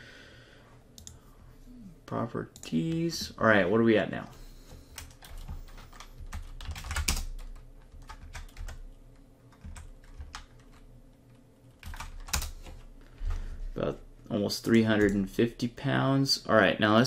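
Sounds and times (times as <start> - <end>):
computer keyboard typing: 1.0 - 1.2, 4.9 - 12.8.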